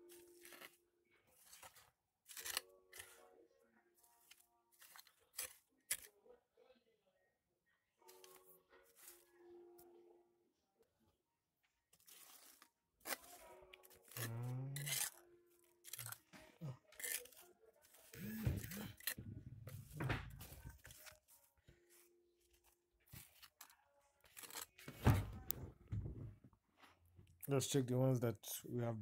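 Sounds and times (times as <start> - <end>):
spoon scraping through soil: 0.1 - 3.2, 11.9 - 24.9.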